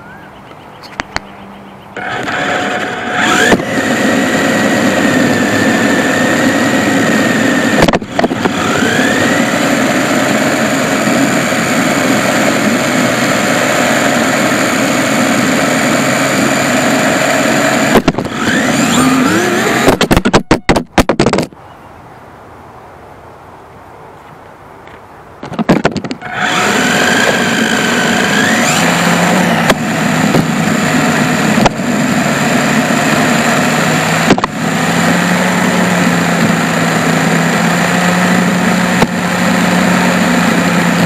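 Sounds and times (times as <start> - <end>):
toy car electric motor whining: 2.0 - 20.9, 26.2 - 41.0
toy car tumbling knocks: 19.8 - 21.6, 25.4 - 26.2
tyre noise on asphalt: 24.1 - 41.0.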